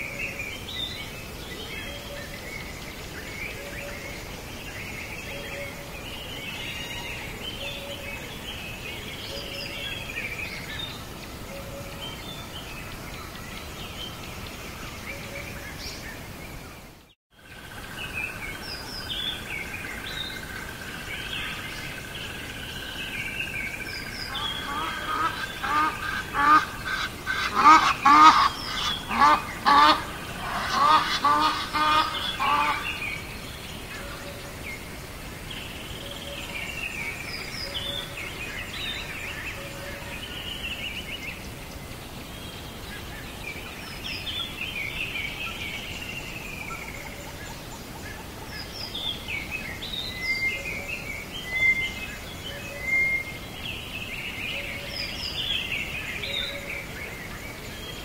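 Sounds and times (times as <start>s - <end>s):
steady background hiss: 0.0s - 58.0s
bird repeated calls: 24.0s - 33.2s.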